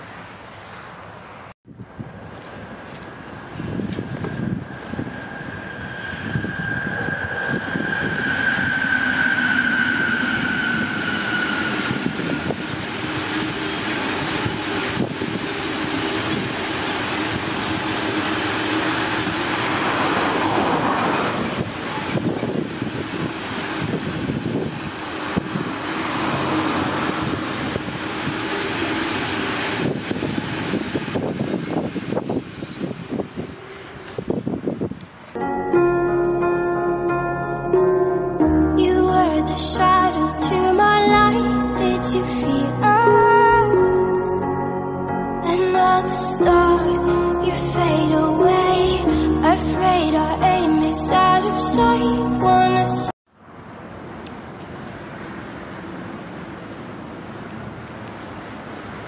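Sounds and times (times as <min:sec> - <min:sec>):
road traffic: 0:00.0 - 0:36.3, 0:53.3 - 0:59.0
electric locomotive whine: 0:01.4 - 0:59.0
freight train rolling past: 0:01.9 - 0:35.4
wagon wheels on rails: 0:02.3 - 0:35.4.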